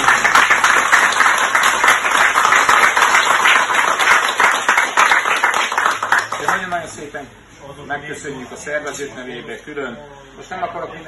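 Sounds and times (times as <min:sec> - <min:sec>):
people applauding: 0:00.0 - 0:06.9.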